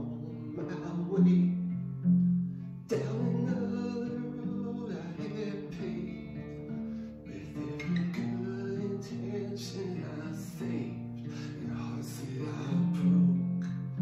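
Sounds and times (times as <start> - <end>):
man singing: 0.0 - 1.8, 2.8 - 14.0
strummed acoustic guitar: 0.0 - 14.0.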